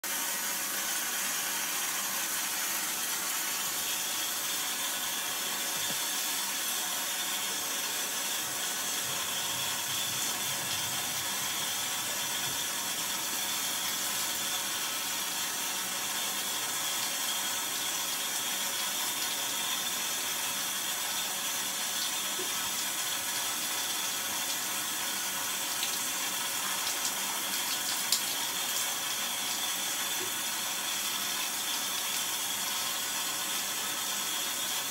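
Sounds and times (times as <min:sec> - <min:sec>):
shower spray splashing: 0:05.7 - 0:17.4, 0:21.4 - 0:32.5.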